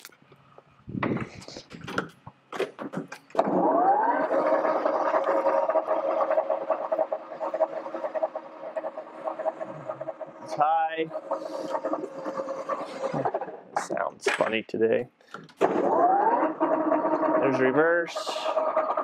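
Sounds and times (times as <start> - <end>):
lathe spinning up and running: 3.4 - 13.8, 15.6 - 19.0.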